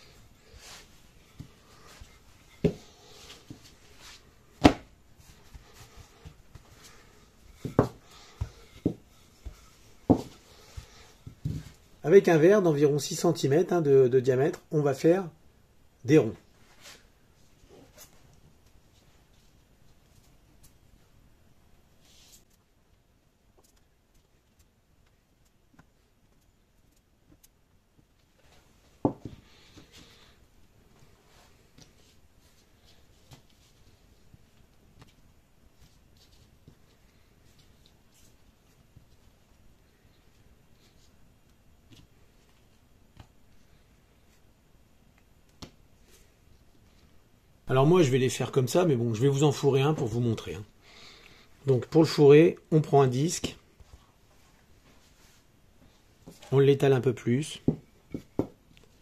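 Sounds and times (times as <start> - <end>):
rolling pin rolling dough: 0.0 - 11.9
hands pressing dough: 0.6 - 11.8.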